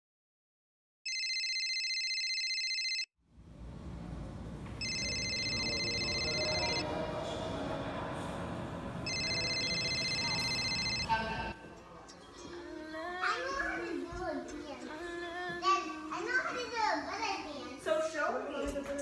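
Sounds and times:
electronic ringing tone: 1.1s - 3.1s, 4.8s - 6.8s, 9.0s - 11.6s
shop background noise: 3.3s - 19.0s.

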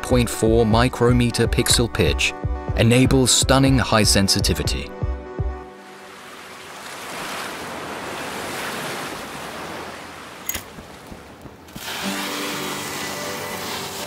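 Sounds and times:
small waves on sandy shore: 5.8s - 14.0s
sparkler fizzing: 11.7s - 14.0s.

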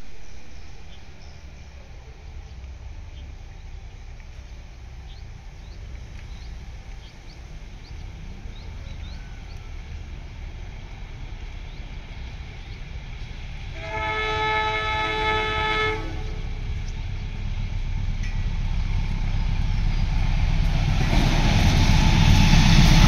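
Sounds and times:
steady low rumble: 0.0s - 13.8s, 14.4s - 23.0s
train horn: 13.6s - 16.8s.

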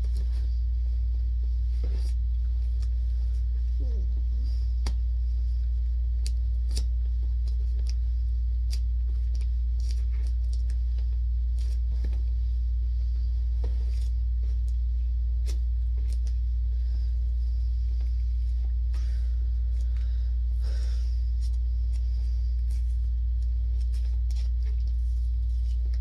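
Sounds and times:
steady low hum: 0.0s - 26.0s
packing tape crackling: 6.0s - 12.3s.

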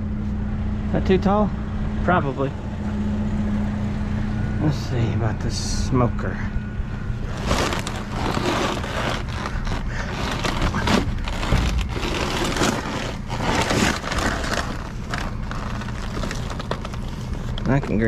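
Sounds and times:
metal scraping on steel floor: 7.3s - 16.5s.

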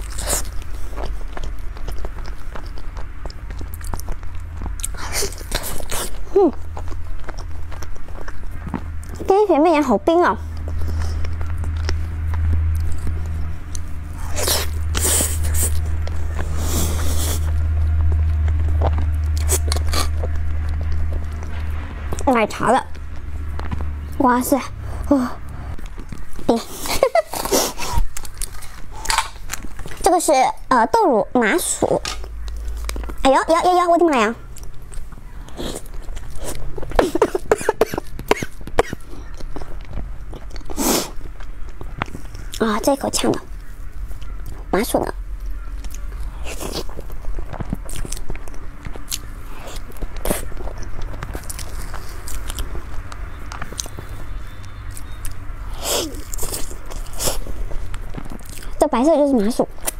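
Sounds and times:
person biting and chewing: 0.0s - 9.3s, 10.4s - 30.1s, 31.6s - 33.2s, 34.4s - 42.6s, 45.3s - 58.8s
steady low hum: 0.0s - 59.9s
woman coughing: 37.0s - 39.0s
hissy mouth noises: 40.7s - 41.3s.

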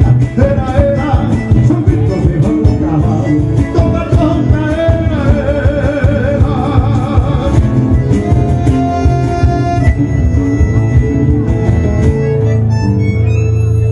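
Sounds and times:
acoustic guitar: 0.0s - 13.9s
folk band playing: 0.0s - 13.9s.

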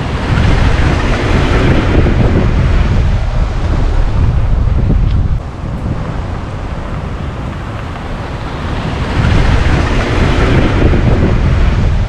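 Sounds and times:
car driving over snow: 0.0s - 12.0s
wind buffeting microphone: 0.0s - 12.0s.

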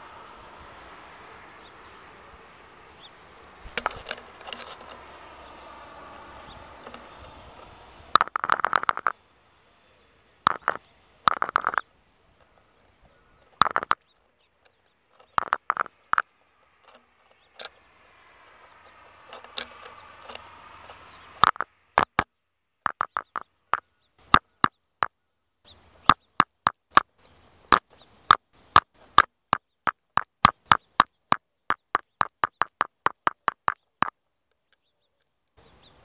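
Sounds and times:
bird pecking on plastic housing: 3.6s - 9.2s, 10.5s - 11.8s, 12.4s - 22.3s, 22.9s - 24.7s, 27.7s - 34.9s.

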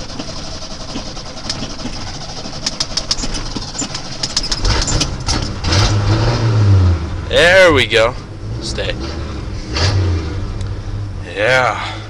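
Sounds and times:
engine cranking on starter: 0.0s - 6.6s
engine running: 0.0s - 12.0s.

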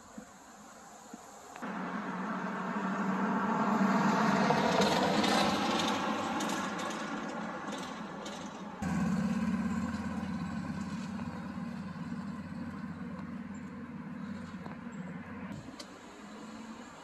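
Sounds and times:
vehicle engine rumble: 1.2s - 17.0s.

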